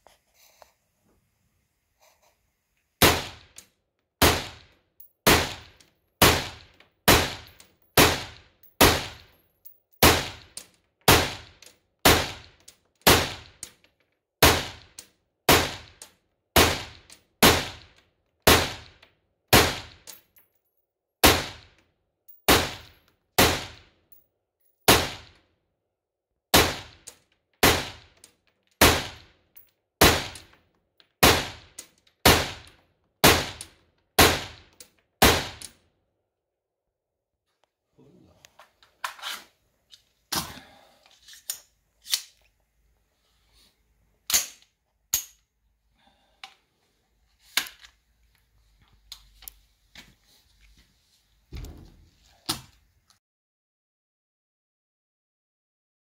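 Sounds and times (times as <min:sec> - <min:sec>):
rifle shots echoing indoors: 0:03.0 - 0:03.6, 0:04.2 - 0:09.3, 0:09.9 - 0:13.7, 0:22.5 - 0:23.9, 0:24.9 - 0:25.4, 0:26.5 - 0:28.2, 0:30.0 - 0:30.6, 0:31.2 - 0:35.8.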